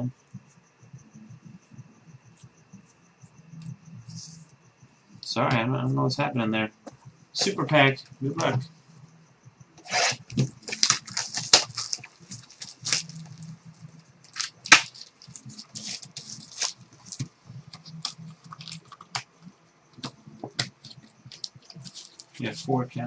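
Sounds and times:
card pack wrapper crinkling: 0:10.3 - 0:13.4, 0:14.3 - 0:19.2, 0:20.8 - 0:22.6.

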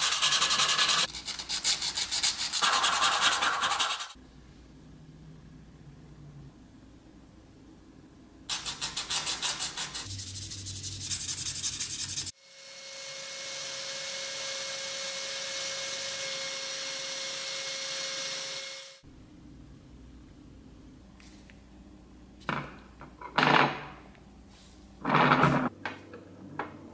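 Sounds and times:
fast rhythmic scratching: 0:00.0 - 0:04.2, 0:08.5 - 0:12.3.

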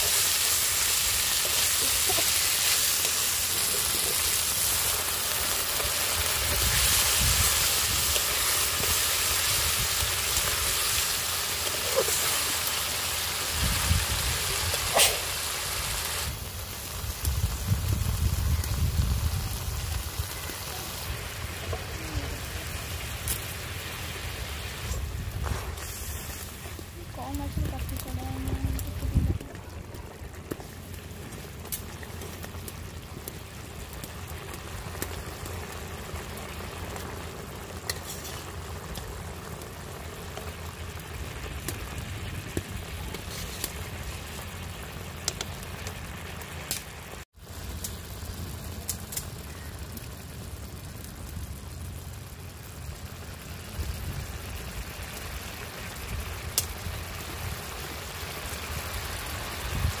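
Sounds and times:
curry simmering and sizzling: 0:00.0 - 1:00.0.

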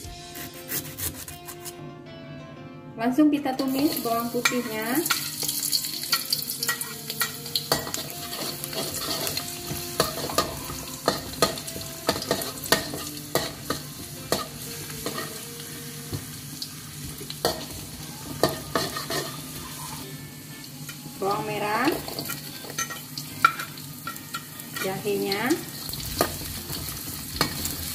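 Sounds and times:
garlic sizzling in oil: 0:03.6 - 0:27.9
metal spatula scraping a wok: 0:03.8 - 0:15.4, 0:18.4 - 0:20.0.

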